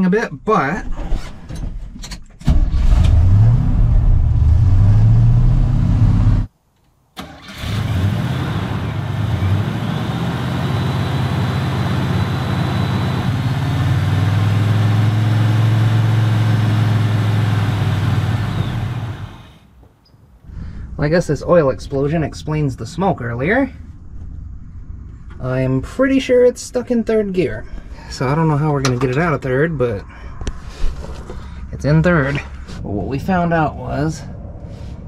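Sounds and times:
truck engine starting and revving: 2.5 - 6.5, 7.2 - 19.7
truck engine running: 7.8 - 19.6.

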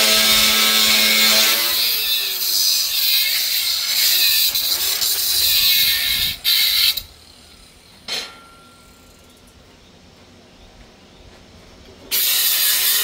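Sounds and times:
angle grinder grinding steel: 0.0 - 7.8, 12.1 - 13.0.

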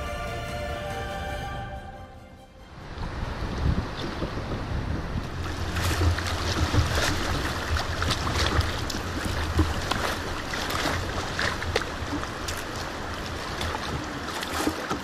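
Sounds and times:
wind buffeting microphone: 2.8 - 15.0
water slapping against hull: 3.8 - 15.0.

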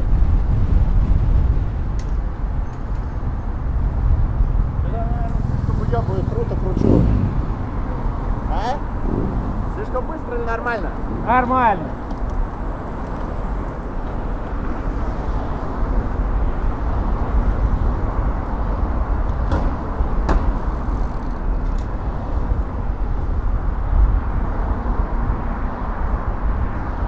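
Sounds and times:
wind rushing: 0.0 - 21.0
city traffic: 0.0 - 27.0
heavy low rumble: 3.6 - 11.5.

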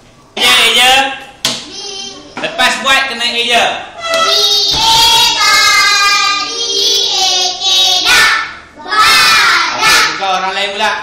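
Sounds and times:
children chanting in sing-song: 4.0 - 10.4.

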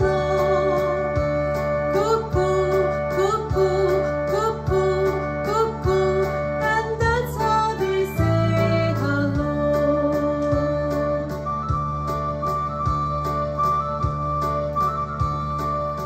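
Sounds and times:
person singing children's song: 0.0 - 11.4
acoustic guitar: 0.0 - 16.0.

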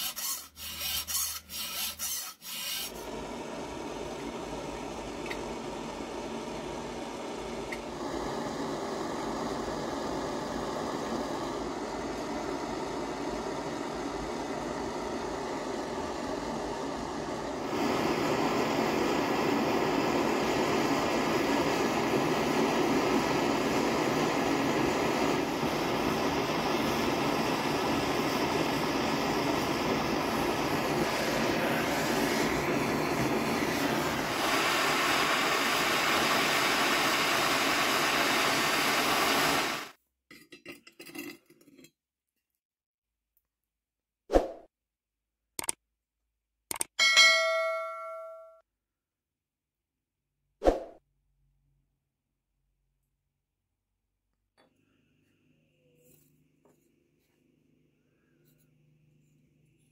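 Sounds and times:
gas torch flame hissing: 0.0 - 40.0.

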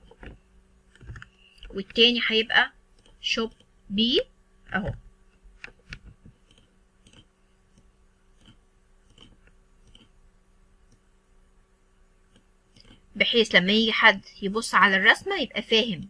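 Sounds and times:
computer mouse clicks: 0.0 - 2.0, 2.9 - 3.7, 5.6 - 10.2, 12.3 - 13.1
faint low hum: 0.0 - 16.0.

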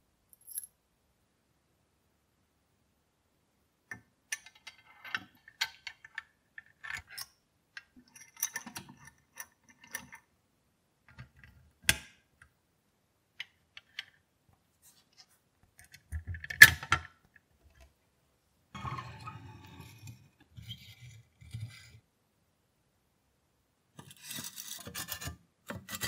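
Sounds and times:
small metal parts clicking and scraping: 4.3 - 10.2, 24.0 - 26.0.

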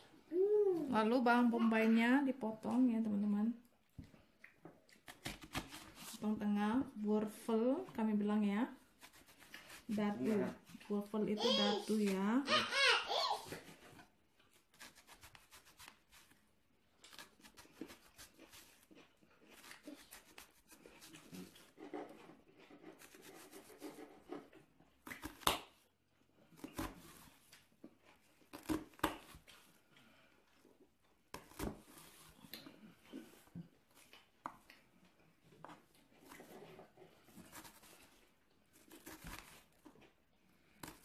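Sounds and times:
knife slicing onion: 5.0 - 6.2, 9.0 - 10.5, 14.6 - 16.4, 19.5 - 25.8, 28.5 - 29.5, 37.3 - 39.8.

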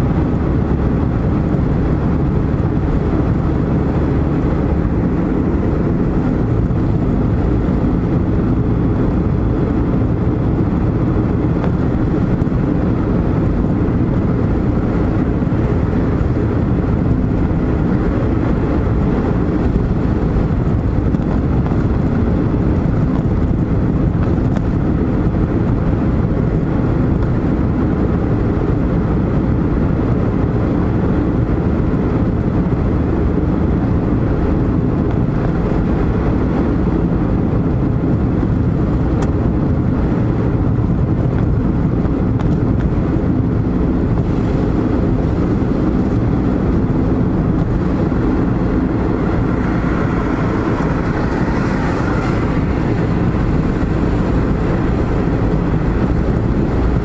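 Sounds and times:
car cabin road rumble: 0.0 - 57.0.

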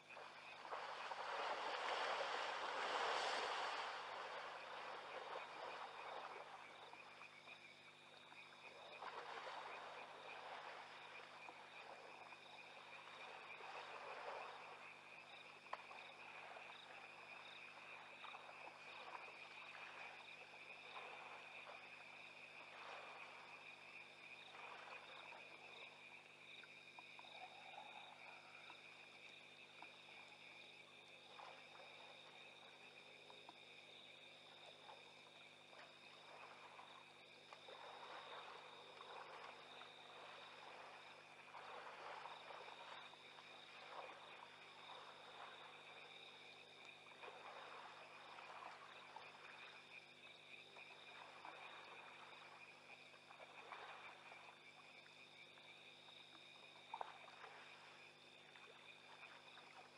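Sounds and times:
insects and frogs trilling: 0.0 - 59.9
soft splashing: 0.0 - 59.9.

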